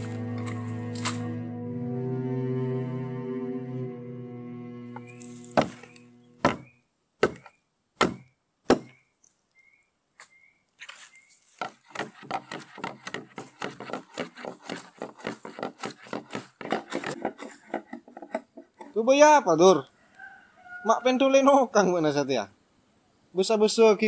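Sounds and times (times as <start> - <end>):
small repeated chirp: 5.0 - 11.4
sharp heavy knocks: 6.4 - 9.0.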